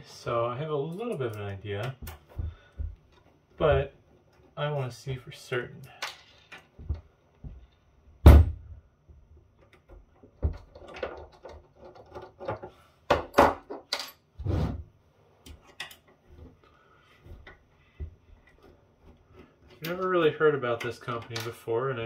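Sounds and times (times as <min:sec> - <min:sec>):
loud thunk: 0:08.2 - 0:08.6.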